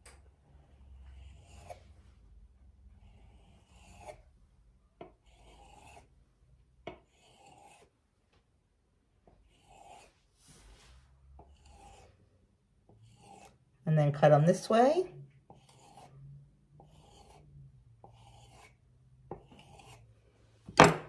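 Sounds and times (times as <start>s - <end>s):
knife scraping through dough: 0.5s - 2.1s, 2.9s - 4.4s, 5.0s - 6.2s, 6.9s - 8.0s, 9.4s - 13.8s, 15.4s - 20.3s.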